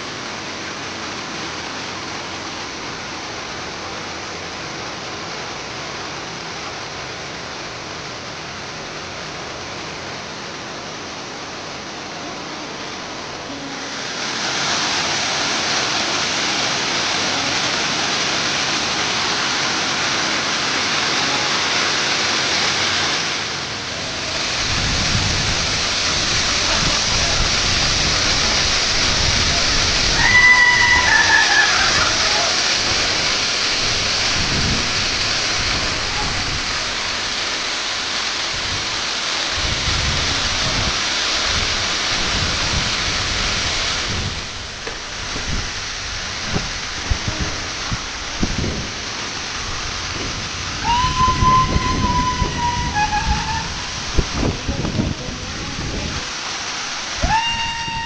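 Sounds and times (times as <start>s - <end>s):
waterfall roaring: 0.0s - 58.0s
deep uneven rumble: 31.0s - 57.2s.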